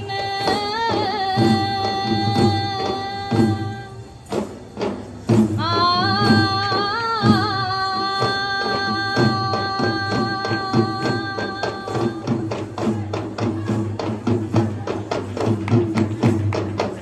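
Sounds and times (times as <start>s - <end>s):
double-headed drums beating fast: 0.0s - 17.0s.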